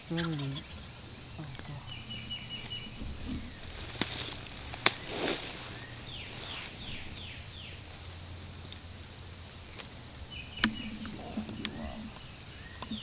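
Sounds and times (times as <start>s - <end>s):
high insect buzz: 0.0s - 13.0s
songbird falling notes: 0.1s - 8.3s, 9.8s - 13.0s.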